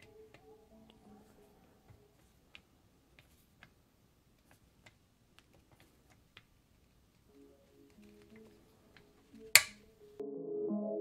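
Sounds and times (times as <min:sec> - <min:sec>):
torque wrench clicks: 0:09.5 - 0:09.8.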